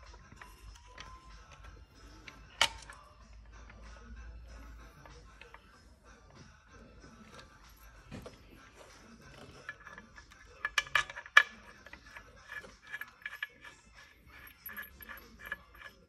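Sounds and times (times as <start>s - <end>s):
metal chain clinking and rattling: 7.3s - 16.0s.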